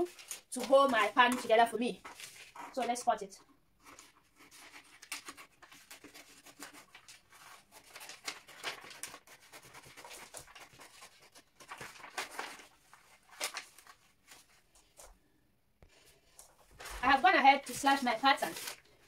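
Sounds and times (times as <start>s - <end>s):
paper rustling: 0.0s - 3.2s, 3.8s - 15.2s, 15.8s - 19.0s
scissors snipping paper: 3.8s - 12.5s.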